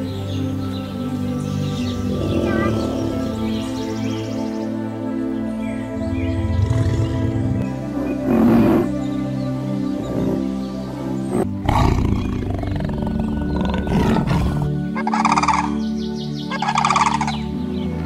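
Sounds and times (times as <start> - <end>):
background music with held tones: 0.0 - 18.0
bird pulsing call: 1.4 - 4.7, 12.1 - 17.5
tiger roaring: 1.8 - 4.3, 6.3 - 9.0, 9.9 - 10.6, 11.3 - 15.6.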